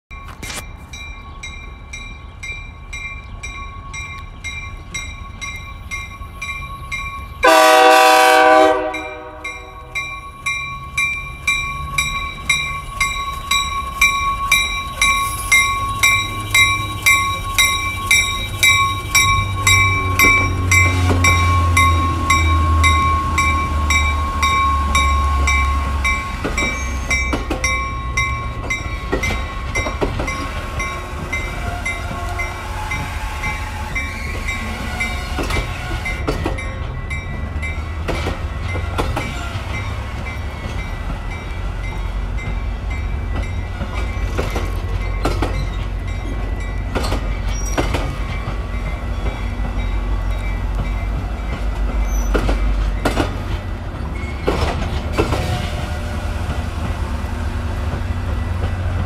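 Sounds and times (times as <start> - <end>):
train rolling past: 0.1 - 59.0
warning bell ringing: 8.9 - 33.1
wheels clicking over rail joints: 10.0 - 59.0.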